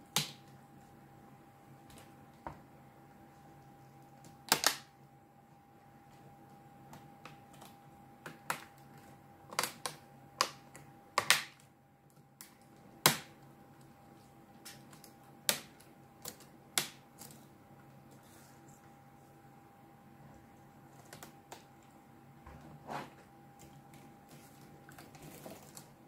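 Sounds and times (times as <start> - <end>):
laptop keyboard clicking and snapping: 4.4 - 4.9, 7.2 - 11.7.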